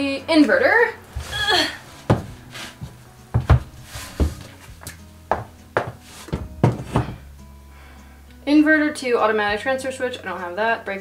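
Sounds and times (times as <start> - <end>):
soft background music: 0.0 - 11.0
objects knocking and clunking: 2.1 - 2.4, 3.4 - 7.3.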